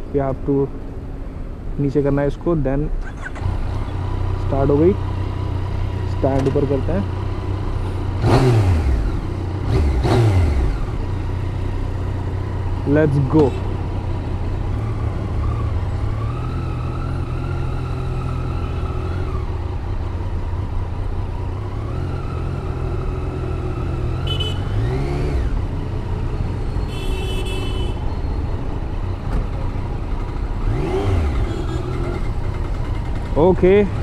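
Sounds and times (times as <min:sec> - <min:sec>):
horn toots: 0:24.1 - 0:25.0, 0:26.9 - 0:28.1, 0:30.9 - 0:32.3
motorcycle engine running: 0:29.6 - 0:34.0.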